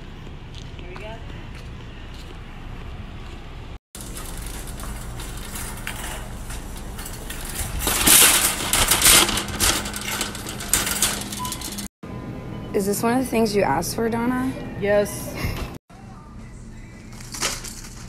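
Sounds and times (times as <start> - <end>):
shopping cart rattling: 4.0 - 11.9, 17.1 - 18.0.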